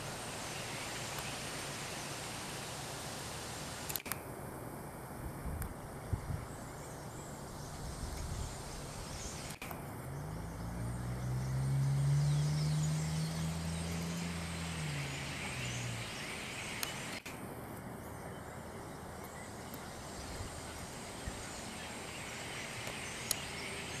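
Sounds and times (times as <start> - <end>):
outdoor background noise: 0.0 - 24.0
passing vehicle engine hum: 9.0 - 17.2.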